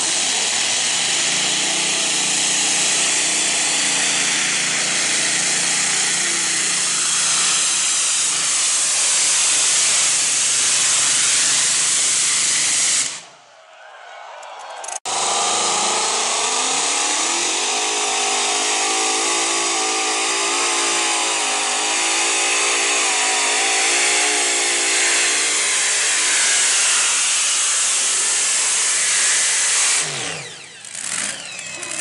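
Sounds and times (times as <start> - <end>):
supercharged engine howling: 15.1 - 32.0.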